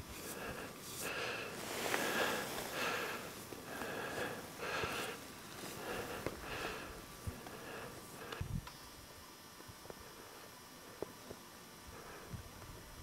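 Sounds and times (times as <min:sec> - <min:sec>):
person breathing hard: 0:00.1 - 0:08.5, 0:11.9 - 0:12.5.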